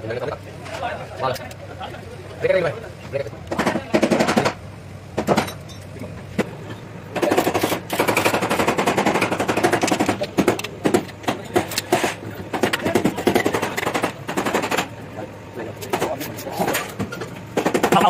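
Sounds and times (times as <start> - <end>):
rapid rattling mechanical impacts: 3.5 - 15.0, 15.6 - 18.0.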